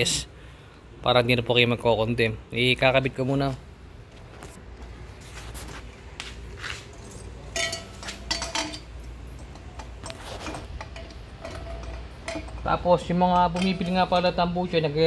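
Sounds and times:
metal exhaust pipe clinking: 6.9 - 15.0.

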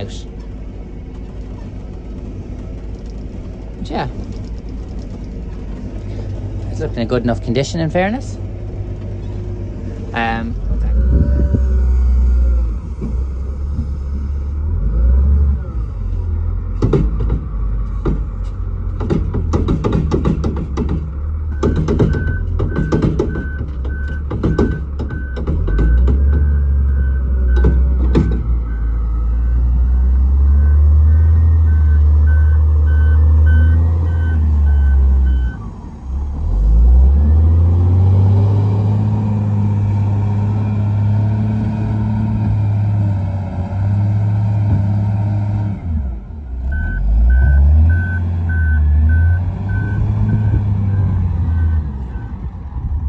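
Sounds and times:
diesel engine running: 0.0 - 53.0
reversing alarm beeping: 21.5 - 35.7, 46.7 - 52.3.

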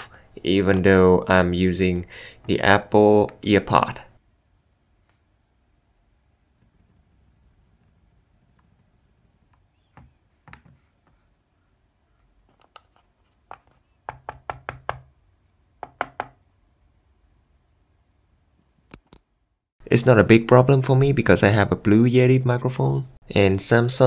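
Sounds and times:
earbud handling knocks and taps: 13.5 - 15.1, 15.8 - 16.4.

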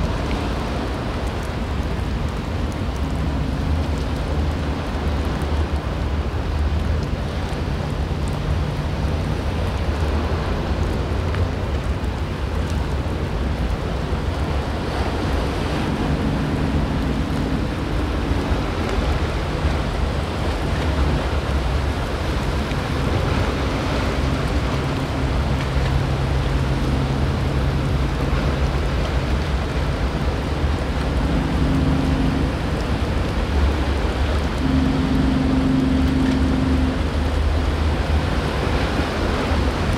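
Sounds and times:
boat engines droning: 0.0 - 39.9
breaking surf rushing: 13.0 - 39.9.

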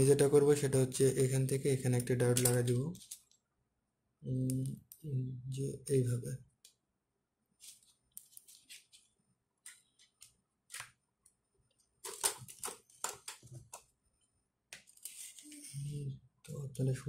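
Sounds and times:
fingers handling circuit board: 2.0 - 3.4, 7.6 - 13.9.

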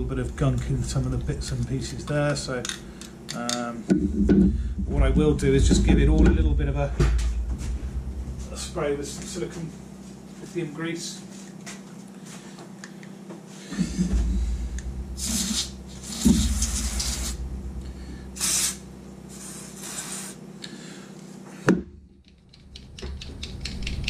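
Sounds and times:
aerosol spray hissing: 15.2 - 17.4, 18.4 - 20.4.

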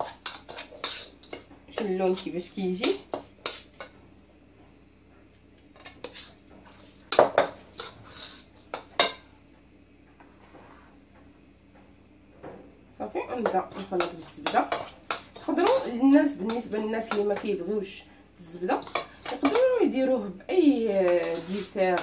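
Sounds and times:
metal spoon scraping mixing bowl: 0.0 - 3.9, 5.8 - 9.1, 13.4 - 17.5, 18.7 - 19.9, 20.8 - 22.0.

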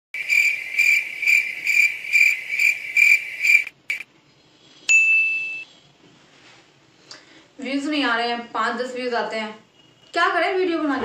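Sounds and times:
cricket chirping: 0.2 - 4.0
high ringing ding: 4.9 - 5.7.

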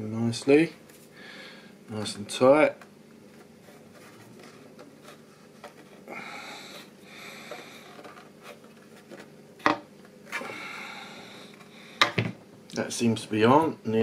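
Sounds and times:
soft breaths: 3.6 - 8.2, 10.3 - 12.0.

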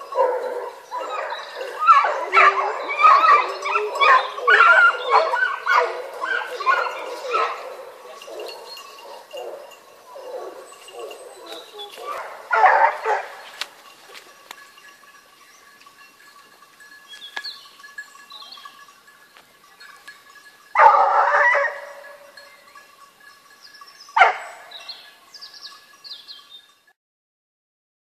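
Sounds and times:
small birds chirping: 0.0 - 12.4, 13.1 - 20.7, 22.1 - 26.8
hounds baying: 0.0 - 18.9, 19.7 - 23.0, 23.9 - 25.2
faint steady ringing: 6.6 - 26.9.

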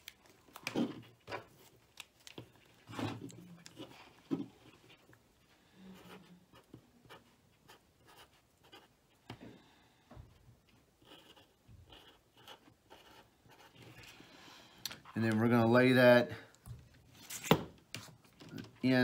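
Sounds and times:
marker pen scratching on tape: 6.0 - 9.0, 11.0 - 14.0.

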